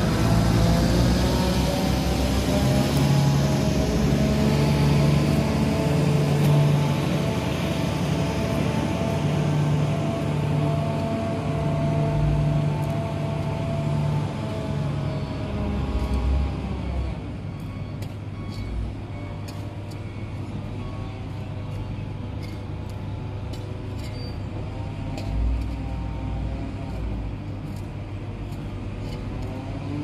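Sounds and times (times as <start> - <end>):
motor grader diesel engine: 0.0 - 30.0.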